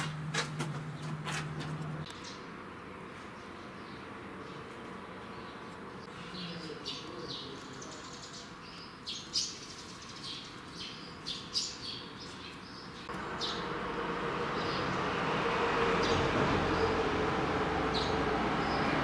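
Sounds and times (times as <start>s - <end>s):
small birds chirping: 0.9s - 2.5s, 3.2s - 13.8s, 14.4s - 15.2s, 17.8s - 19.0s.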